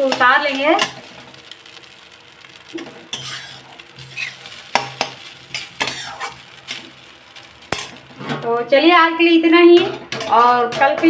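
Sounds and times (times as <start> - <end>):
metal spatula scraping pan: 2.7 - 7.0, 7.6 - 8.7, 9.4 - 11.0.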